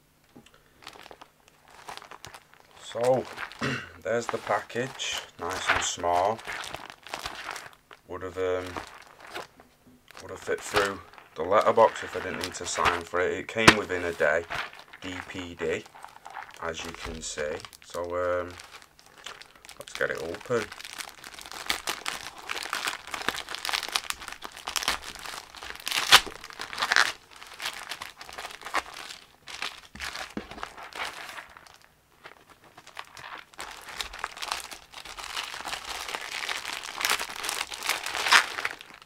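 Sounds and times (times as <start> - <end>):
plastic bag crinkling and tearing: 0.5 - 39.0.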